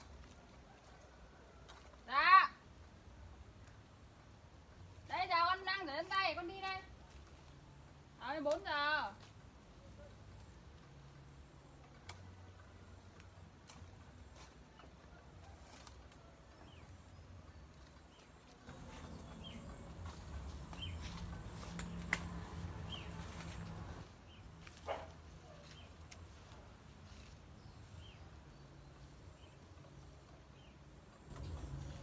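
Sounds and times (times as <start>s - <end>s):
birds chirping: 16.6s - 26.5s.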